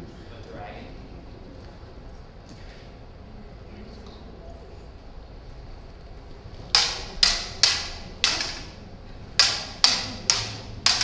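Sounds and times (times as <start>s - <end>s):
plastic lightsaber blades clashing: 6.4s - 11.0s.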